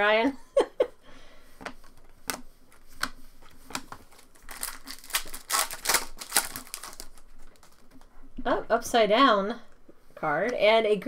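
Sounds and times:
cards clicking and rustling: 1.6 - 8.1
foil wrapper crinkling: 3.5 - 8.2.

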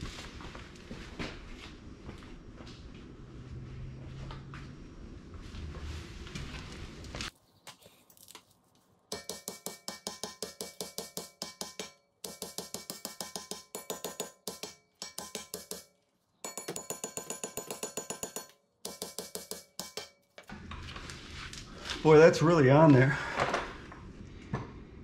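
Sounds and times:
hammer striking metal rotor: 9.1 - 20.5.

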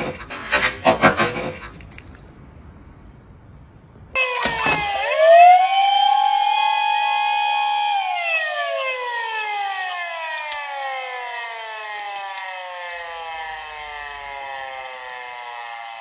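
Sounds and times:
police siren wail: 4.2 - 16.0
toy car clicks: 10.2 - 15.6.

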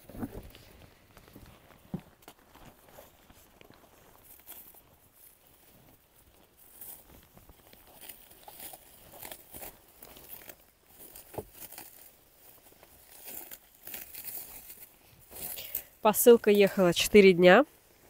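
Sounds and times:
packaging crinkling and rustling: 0.1 - 15.9.

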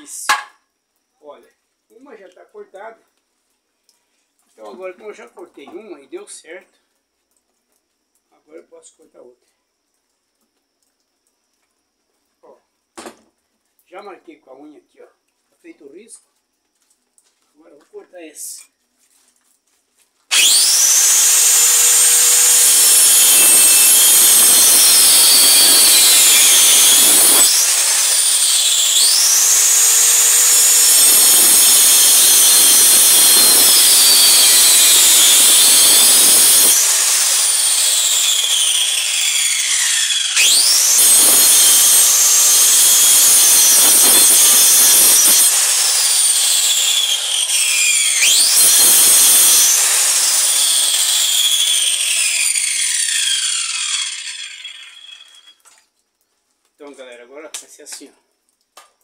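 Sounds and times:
circular saw cutting wood: 20.3 - 55.6.

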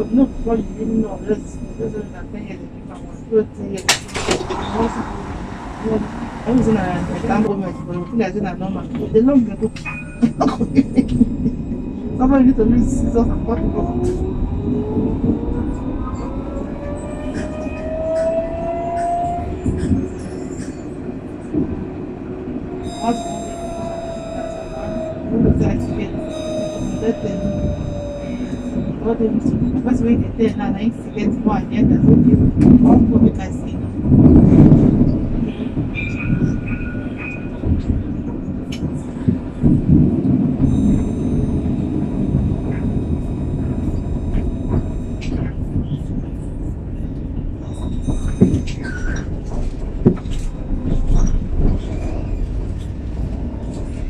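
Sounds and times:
tram traction drive whining: 0.0 - 54.0
wheels rumbling on rail: 0.0 - 54.0
thin high whine: 22.8 - 29.0.

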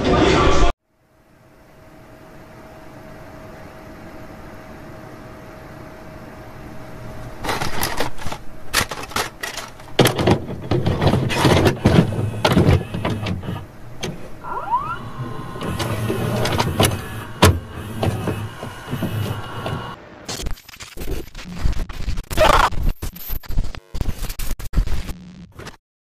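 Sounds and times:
rising whistle: 14.4 - 16.4.

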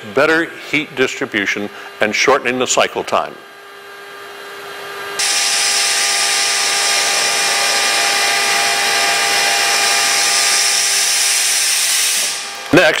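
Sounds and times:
powered lift whirring hiss: 5.2 - 12.8.

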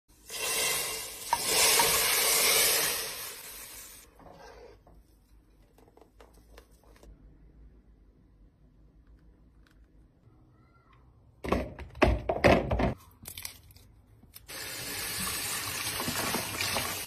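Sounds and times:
hot oil sizzling in soup: 0.1 - 4.1.

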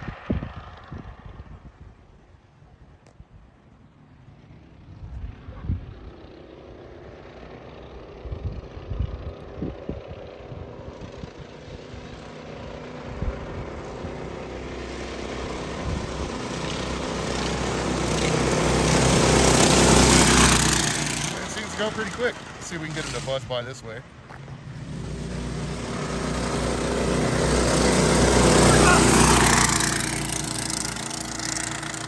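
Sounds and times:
go kart engine running: 5.9 - 23.6, 24.3 - 32.0.

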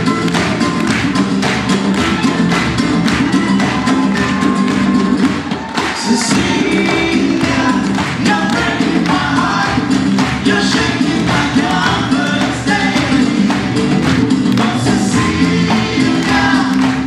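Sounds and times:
accordion: 0.0 - 5.4, 6.1 - 17.0
djembe beat: 0.0 - 17.0
mallet-struck drum: 0.0 - 17.0
voices singing in harmony: 3.4 - 17.0
nylon-string guitar: 6.3 - 17.0.

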